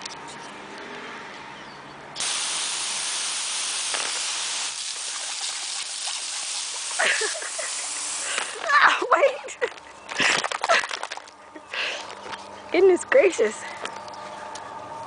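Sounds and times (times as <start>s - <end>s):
hose nozzle spray hissing: 2.2s - 8.7s.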